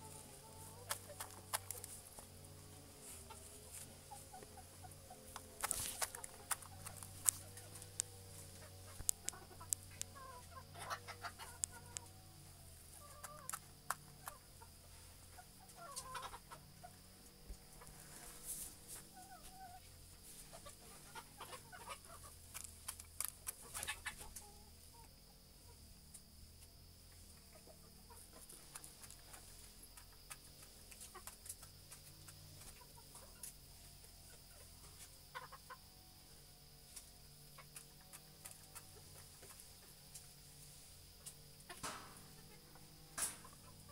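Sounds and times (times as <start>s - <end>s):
rooster clucking: 0.0s - 17.9s, 19.0s - 22.5s, 23.4s - 25.8s, 34.3s - 35.9s
clicks and rustles: 5.3s - 10.2s.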